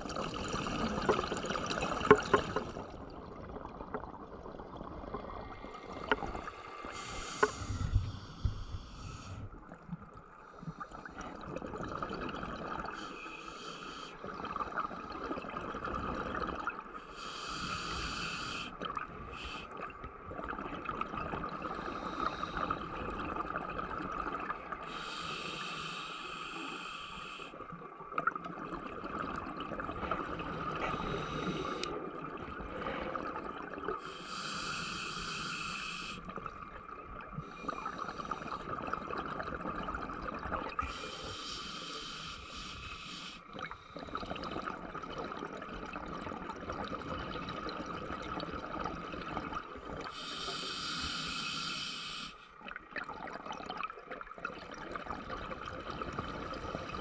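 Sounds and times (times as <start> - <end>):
bubbling: 0.0 - 12.9, 14.2 - 16.9, 52.6 - 57.0
hissing breath underwater: 5.5 - 9.5, 12.9 - 14.3, 17.0 - 19.7, 21.7 - 22.9, 24.8 - 27.6, 30.7 - 32.0, 34.0 - 36.3, 40.8 - 44.5, 50.1 - 52.5.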